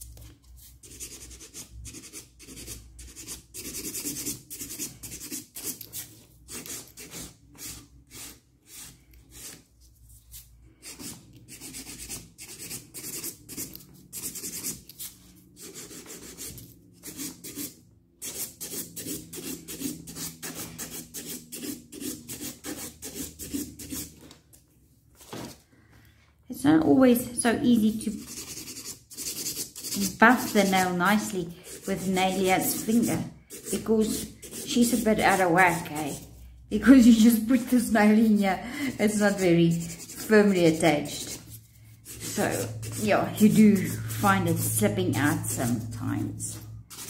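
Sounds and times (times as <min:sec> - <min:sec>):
nail file scraping acrylic nail: 0:00.8 - 0:09.6, 0:10.8 - 0:24.1, 0:28.0 - 0:36.3, 0:37.5 - 0:47.0.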